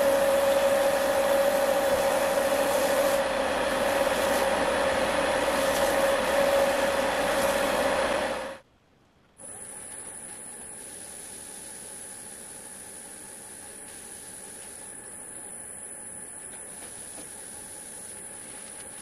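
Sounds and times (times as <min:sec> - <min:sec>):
wood lathe humming and rubbing: 0:00.0 - 0:08.6
faint steady hiss: 0:00.0 - 0:19.0.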